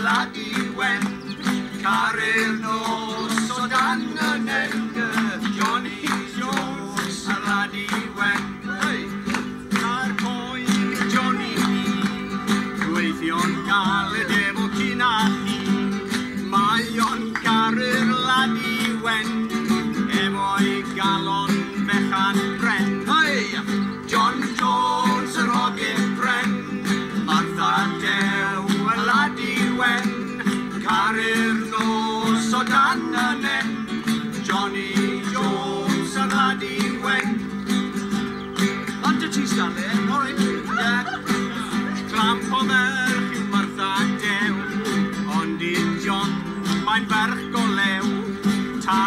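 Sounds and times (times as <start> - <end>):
person singing: 0.0 - 37.7, 38.8 - 49.0
acoustic guitars strumming: 0.0 - 49.0.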